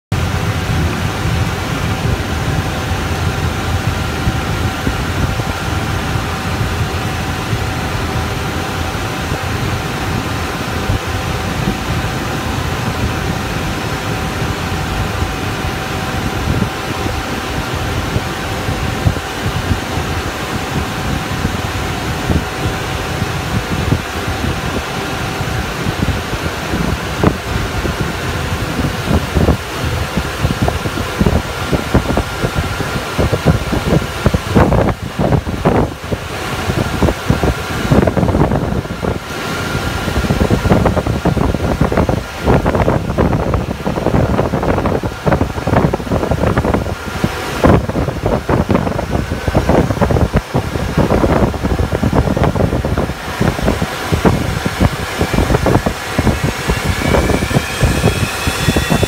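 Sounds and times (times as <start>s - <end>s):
air-conditioning: 0.0s - 59.0s
jet engines rushing: 0.1s - 59.0s
faint rising whine: 51.4s - 59.0s.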